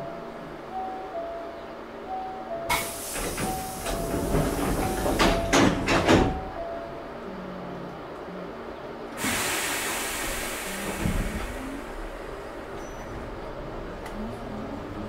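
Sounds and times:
air hissing: 0:02.7 - 0:05.4, 0:09.2 - 0:12.0
sliding doors closing: 0:02.7 - 0:06.6, 0:09.2 - 0:15.0
knocks and clatter: 0:03.2 - 0:06.5.

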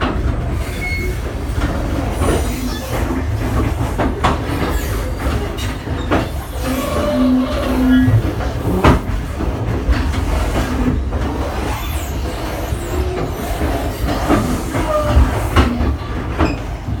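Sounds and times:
train wheels rumbling on track: 0:00.0 - 0:17.0
faint brake squeals: 0:00.6 - 0:01.2.

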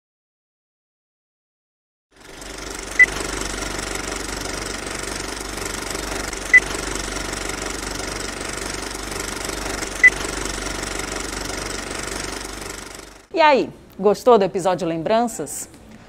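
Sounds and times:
film projector clatter: 0:02.2 - 0:13.3.

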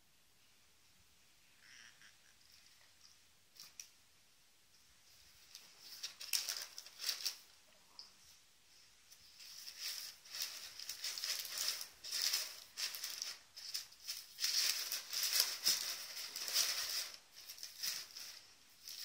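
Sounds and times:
tissue paper rustling: 0:05.1 - 0:07.6, 0:08.2 - 0:19.0.

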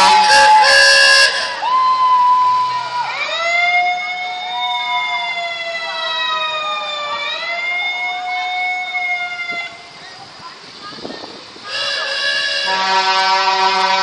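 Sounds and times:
horn long held tone: 0:00.0 - 0:02.1, 0:11.7 - 0:14.0.

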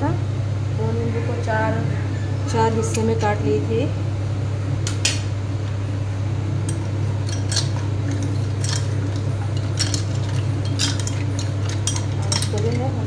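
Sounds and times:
steady low hum: 0:00.0 - 0:13.0
spoon stirring ice in glass: 0:06.7 - 0:13.0.

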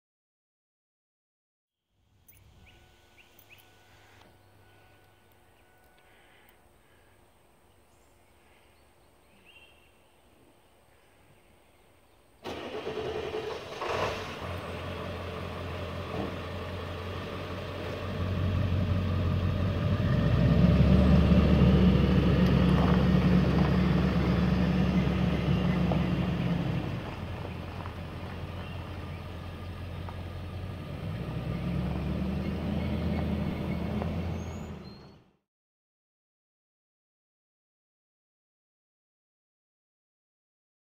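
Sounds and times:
small engine running: 0:12.4 - 0:35.1.

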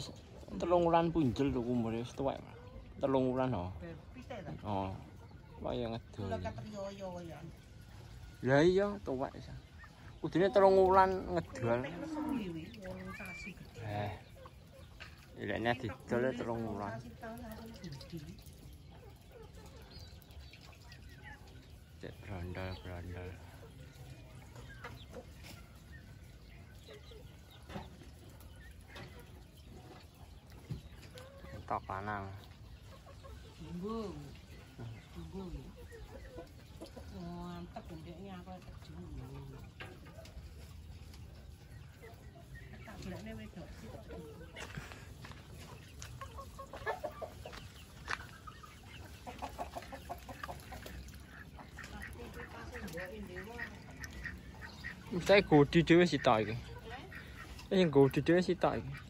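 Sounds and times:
chickens clucking: 0:00.0 - 0:59.0.

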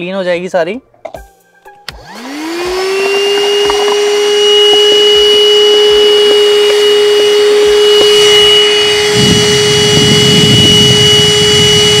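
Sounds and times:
vacuum cleaner motor whine: 0:01.9 - 0:12.0
vacuum nozzle sucking up dirt: 0:01.9 - 0:12.0.

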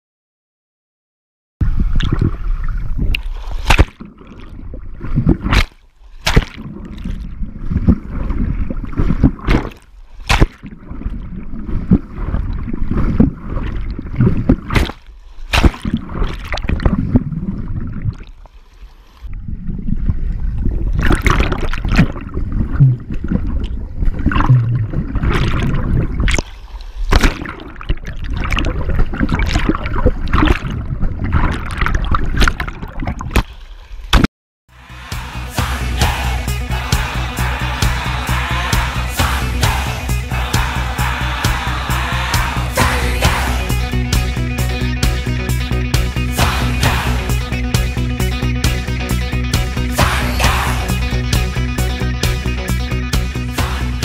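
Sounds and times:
water sloshing and bubbling: 0:01.6 - 0:34.3
sharp splashes and knocks: 0:03.1 - 0:17.4, 0:20.9 - 0:34.3.

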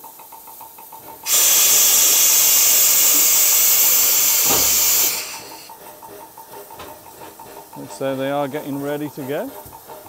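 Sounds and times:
steam locomotive hissing: 0:00.0 - 0:10.0.

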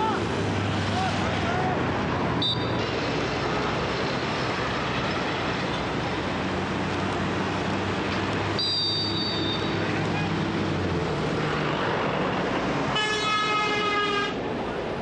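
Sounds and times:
traffic noise: 0:00.0 - 0:15.0
high shrill whistle-like tone: 0:08.6 - 0:09.6.

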